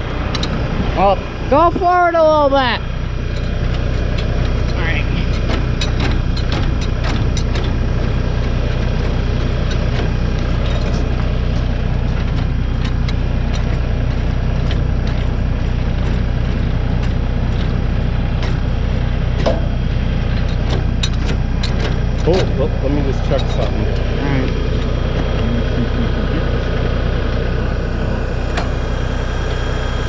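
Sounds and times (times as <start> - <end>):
truck engine idling: 0.0 - 30.0
metal clicks and clanks: 0.2 - 0.7, 3.0 - 26.2.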